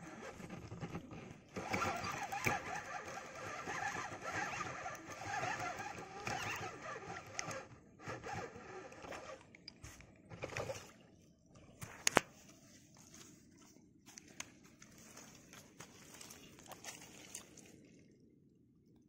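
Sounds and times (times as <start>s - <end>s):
fishing reel cranking: 1.5s - 9.5s.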